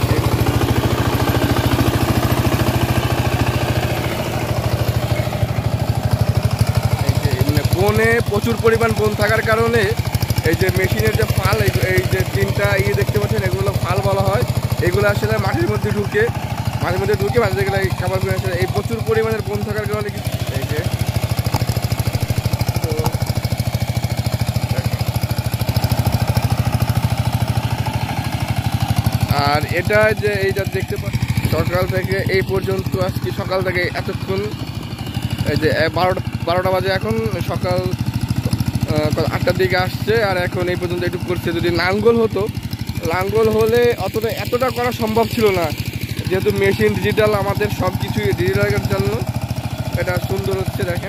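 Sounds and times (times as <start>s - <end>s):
diesel tractor engine chugging: 0.0s - 51.0s.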